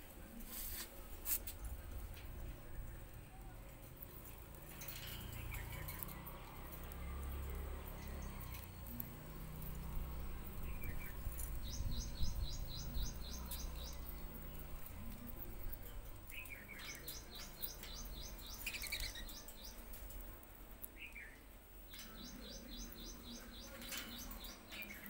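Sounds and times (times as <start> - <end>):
birds pecking seed clicks: 0.7 - 25.0
high bird chirps: 10.6 - 14.4, 16.3 - 19.8.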